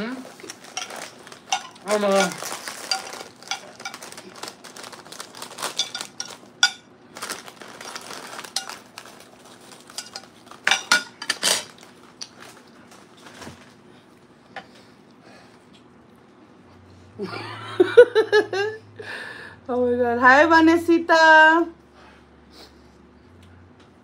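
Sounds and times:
snack bag crinkling: 0:00.2 - 0:10.7, 0:11.4 - 0:13.8.

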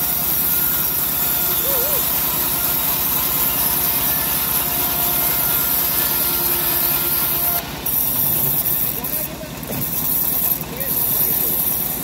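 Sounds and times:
bandsaw blade cutting wood: 0:00.0 - 0:12.0.

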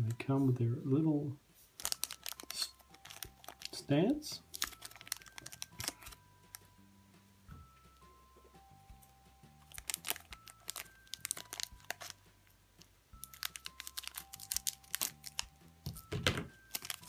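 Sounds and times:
soft background music: 0:00.0 - 0:17.0
scissors snipping plastic bag: 0:01.8 - 0:03.8, 0:04.5 - 0:06.2, 0:09.7 - 0:12.2, 0:13.2 - 0:17.0
plastic crinkling: 0:01.8 - 0:06.6, 0:09.6 - 0:17.0.

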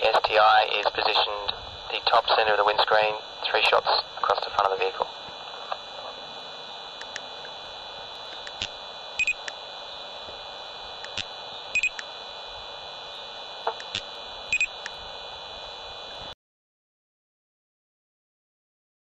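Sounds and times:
static hiss: 0:00.0 - 0:16.4
faint clicks: 0:07.0 - 0:07.3, 0:13.7 - 0:14.1.

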